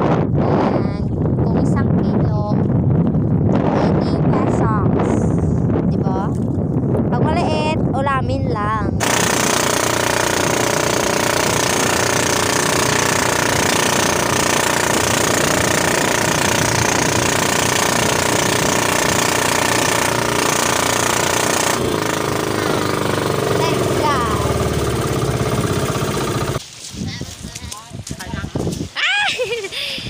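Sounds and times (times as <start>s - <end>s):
boat engine clattering: 9.0s - 26.6s.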